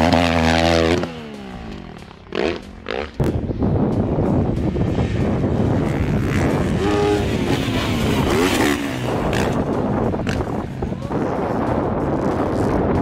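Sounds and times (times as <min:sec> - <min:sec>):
bike engine revving: 0:00.0 - 0:13.0
motocross bike engines: 0:00.0 - 0:13.0.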